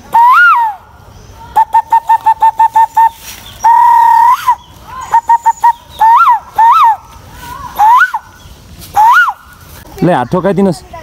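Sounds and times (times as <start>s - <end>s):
bird-like whistled call: 0.1s - 7.1s, 7.8s - 9.5s.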